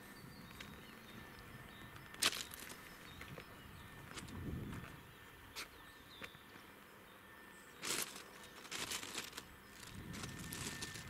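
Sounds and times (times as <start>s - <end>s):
footsteps crunching on gravel: 1.8s - 5.0s, 7.8s - 11.0s.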